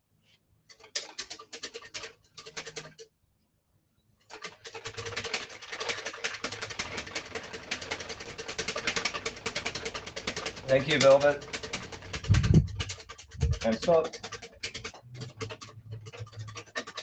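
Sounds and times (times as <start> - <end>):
whisk beating in metal bowl: 8.7 - 14.3.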